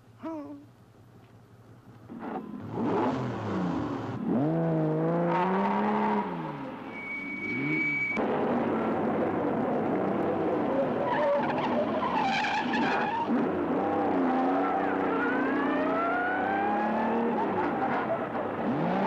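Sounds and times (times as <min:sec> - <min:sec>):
sports car engine revving: 0:02.1 - 0:06.8.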